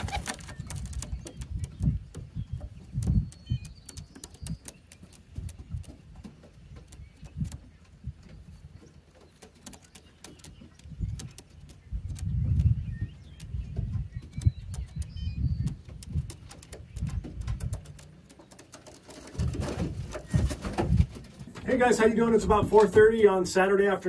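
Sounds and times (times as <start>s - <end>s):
pigeons cooing: 0.0s - 0.6s
wings flapping: 0.0s - 1.7s, 15.6s - 21.7s.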